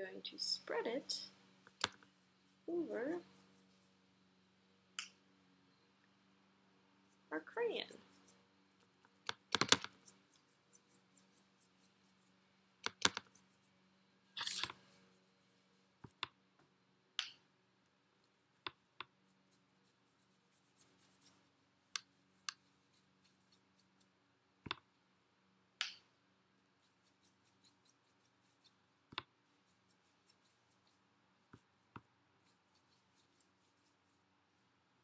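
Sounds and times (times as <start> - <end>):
brush strokes on paper: 2.1 - 4.1, 7.0 - 8.5, 10.0 - 12.4, 18.2 - 24.2, 26.6 - 34.7.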